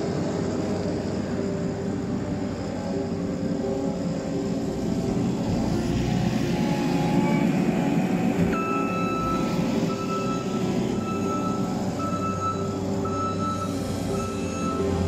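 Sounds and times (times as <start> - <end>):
diesel engine rumbling: 0.0 - 15.0
beeping alarm: 8.5 - 15.0.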